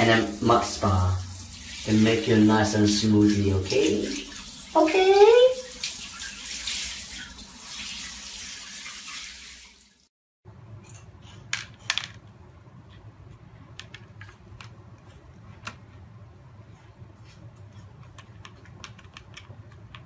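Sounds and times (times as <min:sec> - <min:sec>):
shower head spraying water: 0:00.0 - 0:09.9.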